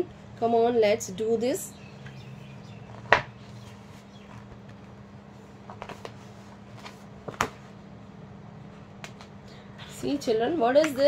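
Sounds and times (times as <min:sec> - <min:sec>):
steady low hum: 0:00.0 - 0:11.0
paper handling noise: 0:02.9 - 0:07.8.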